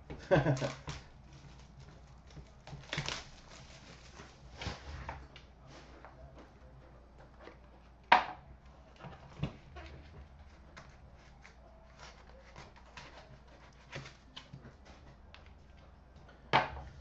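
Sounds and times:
cards clicking and rustling: 0.2s - 5.9s.

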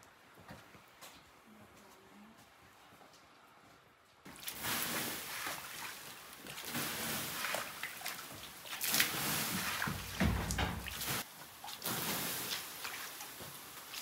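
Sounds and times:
water sloshing in metal basin: 4.3s - 14.0s.

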